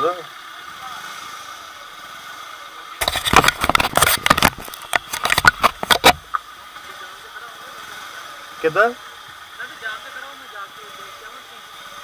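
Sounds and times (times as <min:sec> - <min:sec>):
rapid loud clicks and knocks: 0:03.0 - 0:06.2.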